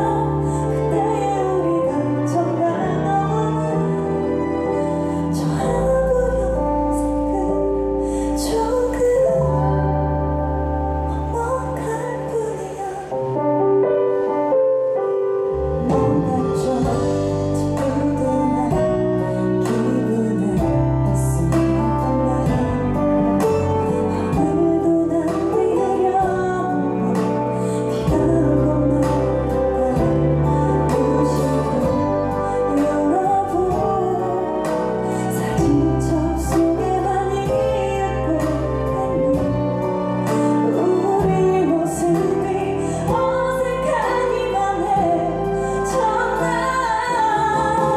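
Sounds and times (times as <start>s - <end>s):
woman singing a ballad: 0.0s - 47.9s
band accompaniment: 14.0s - 47.9s.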